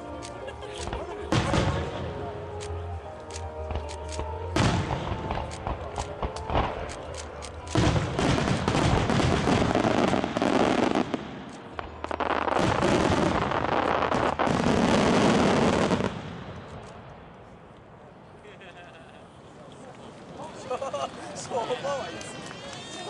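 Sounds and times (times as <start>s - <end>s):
fireworks bursting: 0.7s - 2.7s, 3.7s - 17.1s
crackling and booming fireworks: 0.8s - 2.3s, 3.7s - 17.6s.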